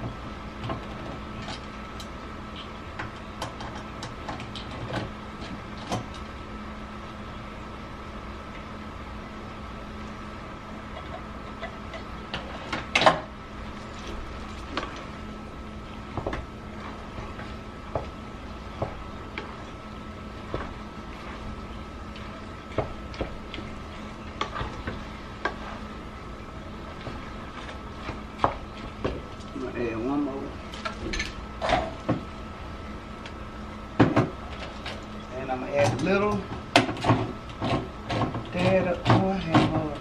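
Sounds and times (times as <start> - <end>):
steady hum: 0.0 - 40.0.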